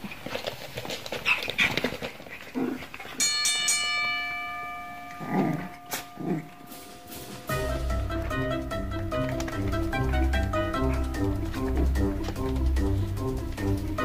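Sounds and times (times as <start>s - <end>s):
puppies growling and yipping: 0.0s - 3.3s, 5.2s - 14.0s
metallic ringing sound effect: 3.2s - 8.0s.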